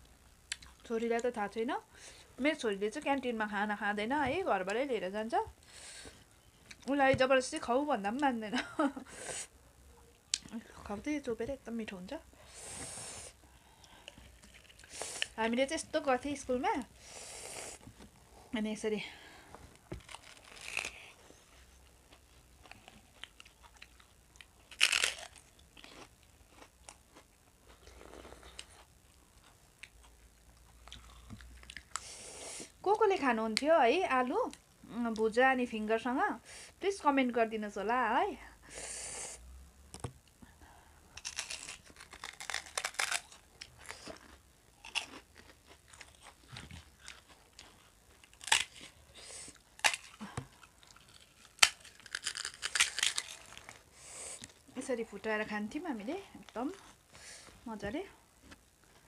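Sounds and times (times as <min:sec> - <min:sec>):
snack stick crunching: 0:19.9 - 0:21.2, 0:22.1 - 0:30.0, 0:41.2 - 0:54.6
chewing with mouth clicks: 0:22.1 - 0:32.0, 0:41.2 - 0:49.0.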